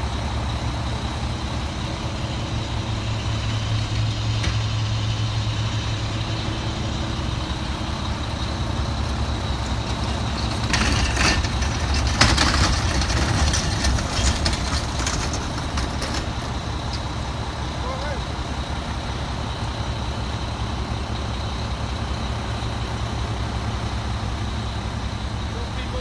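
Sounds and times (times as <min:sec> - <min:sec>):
diesel engine idling: 0:00.0 - 0:26.0
metal clattering and rattling: 0:08.4 - 0:17.3.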